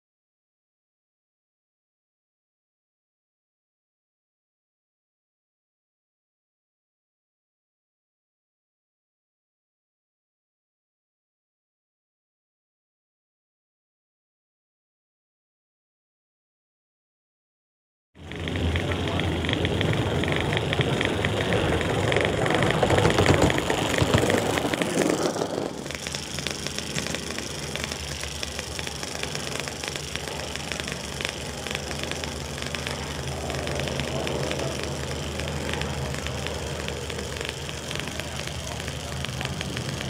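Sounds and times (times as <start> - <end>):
model locomotive engine ticking: 18.2 - 40.0.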